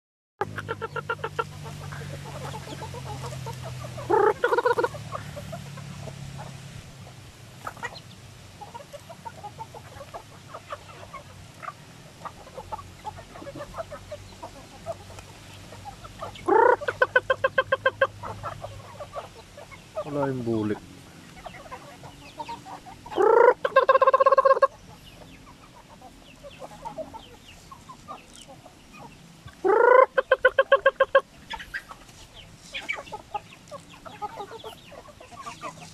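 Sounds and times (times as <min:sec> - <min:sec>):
loud chicken call: 0:00.4 - 0:06.5, 0:15.8 - 0:20.4, 0:21.4 - 0:24.8, 0:29.0 - 0:32.0
chickens clucking: 0:00.4 - 0:35.9.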